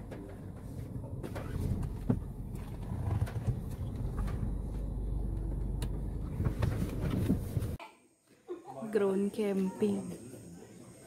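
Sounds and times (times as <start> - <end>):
engine and road rumble: 0.0 - 7.8.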